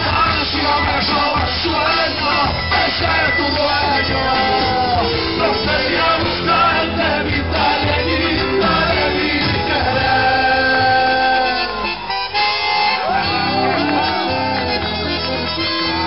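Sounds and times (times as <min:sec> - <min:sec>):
man singing long notes: 0:00.0 - 0:12.1
folk band playing: 0:00.0 - 0:16.0
guitars: 0:00.0 - 0:16.0.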